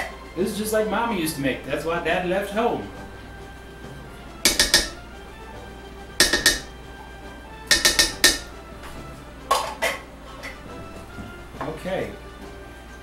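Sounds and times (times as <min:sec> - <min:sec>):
spatula clinking on steel pot: 0:04.5 - 0:05.0, 0:06.2 - 0:06.8, 0:07.7 - 0:08.5.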